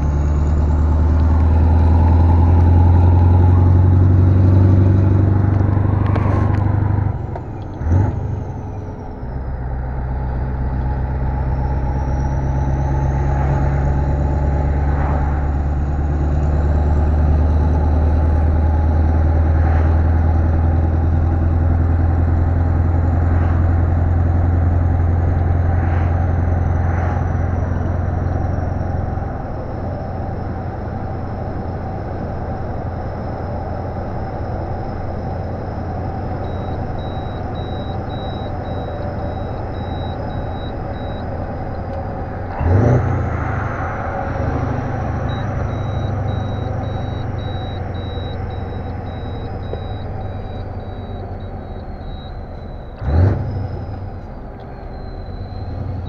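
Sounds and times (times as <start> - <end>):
diesel truck engine running: 0.0 - 56.0
faint beeping: 19.2 - 42.5, 43.4 - 56.0.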